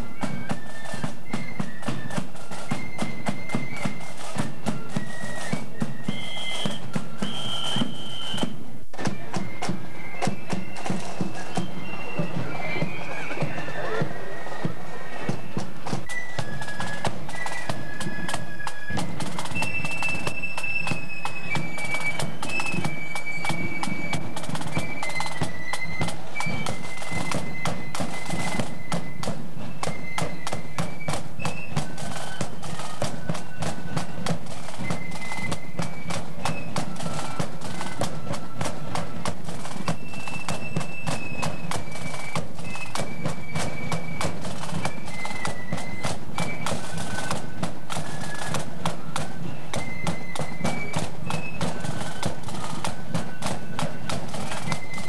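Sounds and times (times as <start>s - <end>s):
flute melody: 0.0s - 55.0s
side drum beats: 0.0s - 55.0s.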